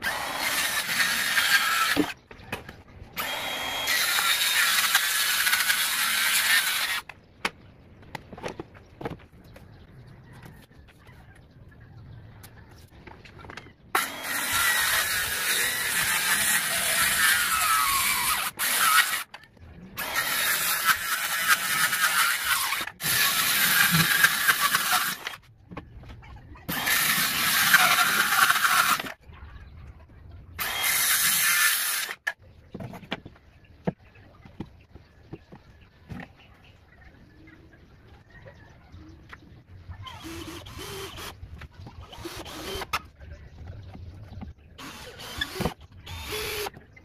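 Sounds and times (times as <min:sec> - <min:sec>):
circular saw cutting wood: 0:00.0 - 0:02.2, 0:03.2 - 0:07.1, 0:14.0 - 0:19.4, 0:20.0 - 0:25.4, 0:26.7 - 0:29.2, 0:30.6 - 0:32.4, 0:44.8 - 0:46.8.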